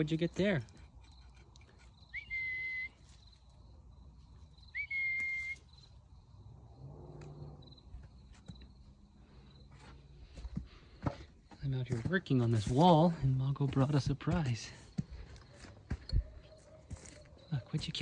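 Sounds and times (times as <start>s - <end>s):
crickets chirping: 0.0s - 11.8s, 14.8s - 18.0s
whistle notes sliding upward: 2.2s - 3.0s, 4.8s - 5.7s.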